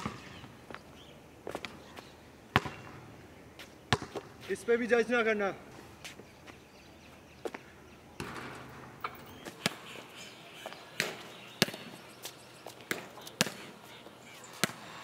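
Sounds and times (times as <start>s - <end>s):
basketball bouncing on concrete: 2.5s - 3.0s, 3.9s - 4.3s, 8.2s - 9.8s, 11.0s - 12.0s, 12.7s - 13.7s, 14.6s - 14.8s.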